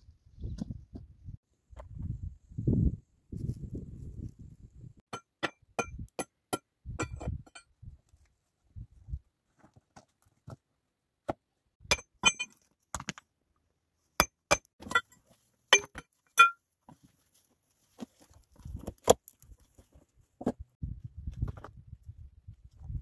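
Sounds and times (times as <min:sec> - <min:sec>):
scuffling on stony soil: 0:16.8 - 0:23.0.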